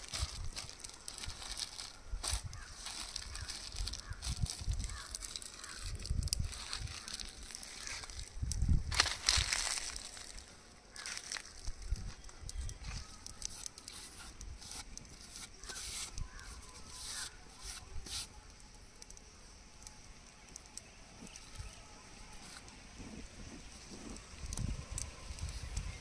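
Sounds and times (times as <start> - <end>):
leaf stems snapping: 0.0 - 15.0
leaves and plastic bag rustling: 0.0 - 19.1.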